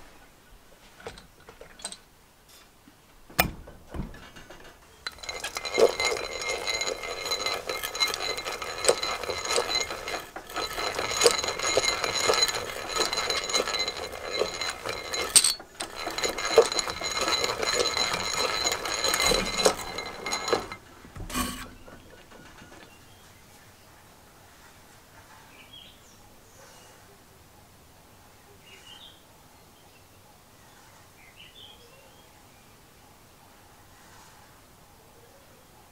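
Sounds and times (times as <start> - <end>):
hand drill gears whirring: 5.0 - 22.9.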